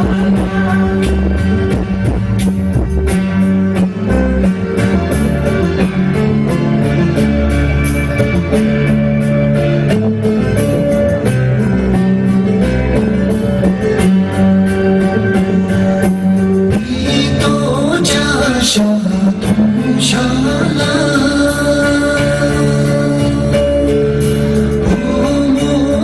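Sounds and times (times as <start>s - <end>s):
person singing: 0.0s - 2.2s, 16.7s - 26.0s
guitar-led music with beat: 0.0s - 26.0s.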